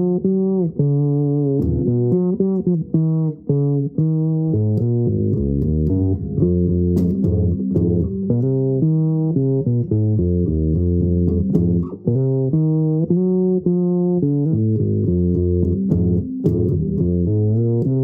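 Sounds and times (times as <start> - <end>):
fretless electric bass plucked: 0.0 - 18.0.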